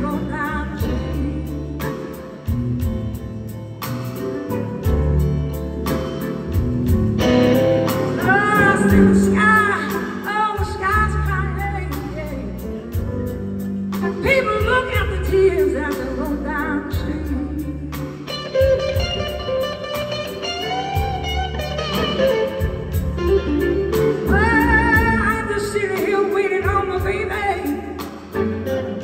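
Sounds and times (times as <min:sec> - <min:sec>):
electric blues band playing: 0:00.0 - 0:29.0
electric guitar bent notes: 0:04.3 - 0:10.2.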